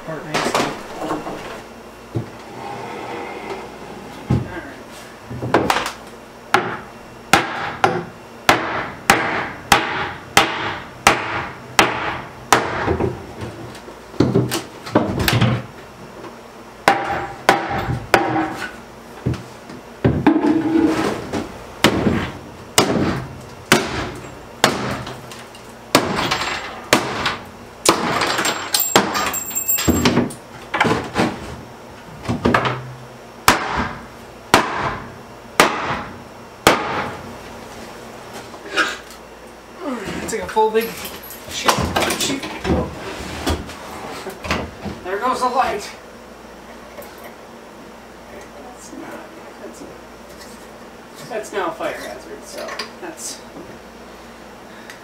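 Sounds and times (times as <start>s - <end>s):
hammer striking wood: 6.5s - 13.1s, 16.8s - 18.6s, 21.8s - 25.1s, 25.9s - 28.3s, 28.9s - 29.2s, 33.5s - 35.0s, 35.6s - 37.1s.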